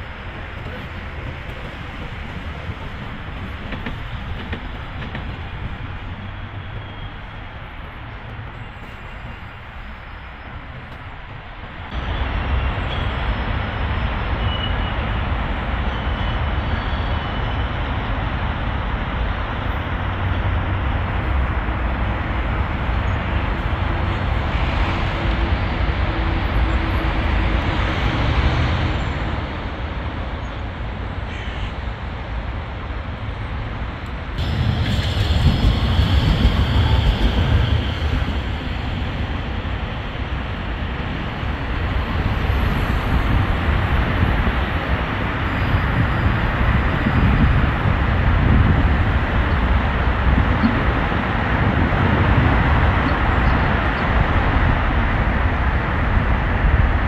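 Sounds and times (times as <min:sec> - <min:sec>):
traffic rumble: 0:00.0 - 0:15.9, 0:17.8 - 0:57.0
wind on microphone: 0:34.3 - 0:57.0.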